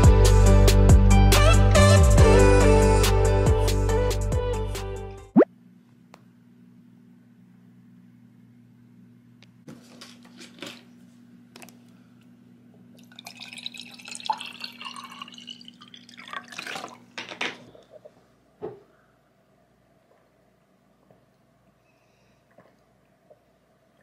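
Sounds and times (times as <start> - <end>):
water poured into a glass: 13.0 - 17.2.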